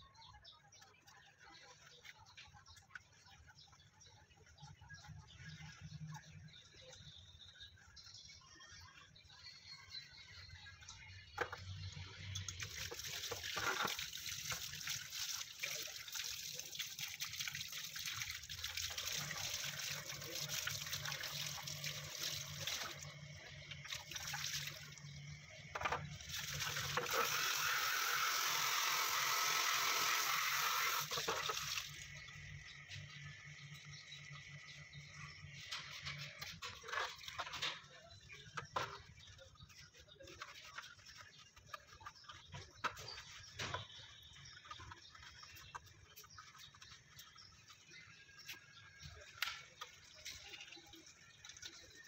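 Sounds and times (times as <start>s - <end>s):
water splashing and trickling: 0.1s - 52.0s
tap water rushing: 11.3s - 33.1s.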